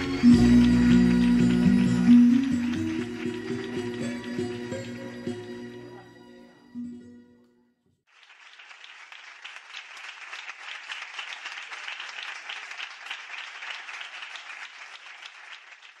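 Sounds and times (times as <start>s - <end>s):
audience applauding: 0.0s - 5.4s, 8.1s - 16.0s.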